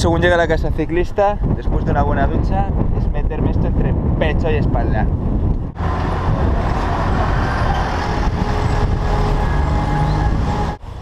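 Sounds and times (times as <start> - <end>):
road traffic rumble: 5.1 - 11.0.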